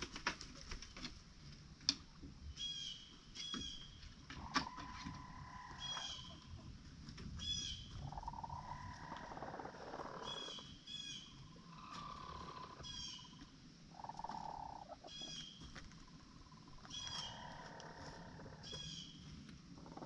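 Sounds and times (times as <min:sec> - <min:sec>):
chickens calling: 0:02.6 - 0:20.0.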